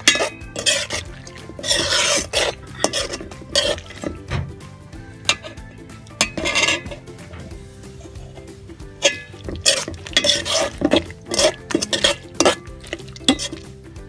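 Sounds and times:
metal spoon scraping pot: 0.0 - 4.3, 5.3 - 13.7.

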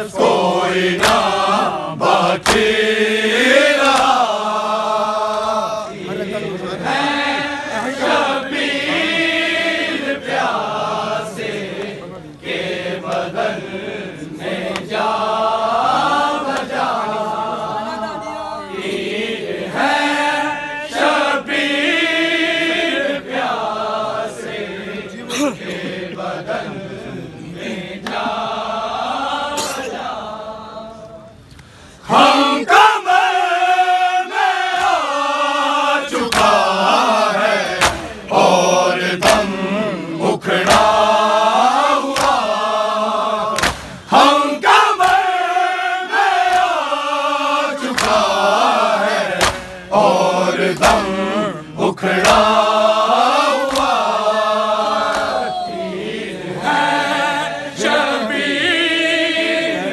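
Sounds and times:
men chanting in unison: 0.0 - 31.0, 32.0 - 59.9
sharp slaps: 0.9 - 1.5, 2.3 - 2.9, 3.7 - 4.4, 34.7 - 35.1, 36.2 - 36.7, 37.6 - 38.3, 39.2 - 39.6, 40.6 - 41.2, 42.1 - 42.6, 43.4 - 44.1, 44.7 - 45.4, 46.3 - 46.9, 47.8 - 50.0, 50.6 - 51.2, 52.1 - 52.8, 53.6 - 54.2, 55.0 - 55.5.

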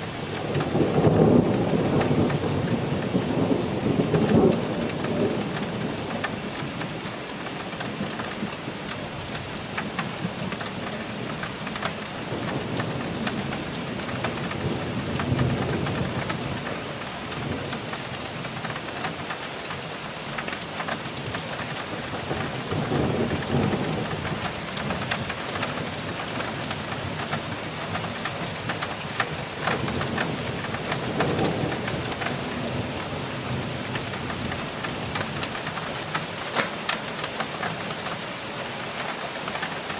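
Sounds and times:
low thunder rumbling: 0.0 - 7.0, 12.2 - 18.6, 21.1 - 37.8
steady rain with ticking drops: 0.0 - 39.9.

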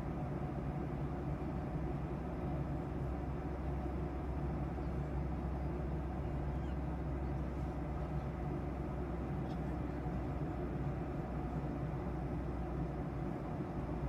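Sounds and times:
jet engine and airflow rumble: 0.0 - 14.0.

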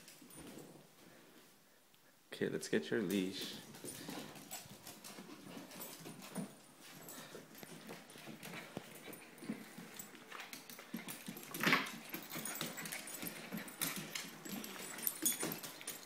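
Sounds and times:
dog claws clicking on wooden floor: 7.6 - 16.0.

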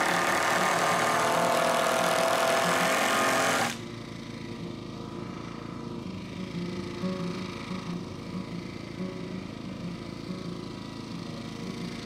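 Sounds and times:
power drill driving screw into wood: 0.0 - 3.8.

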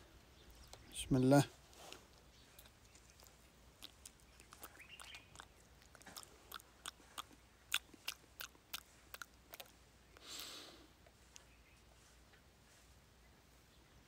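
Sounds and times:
person chewing crunchy food: 1.7 - 10.5
short hissing sound: 10.2 - 10.9.

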